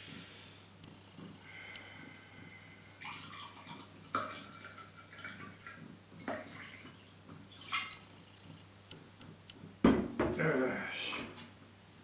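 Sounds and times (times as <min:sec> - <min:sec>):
liquid splashing and gurgling: 0:02.6 - 0:08.2.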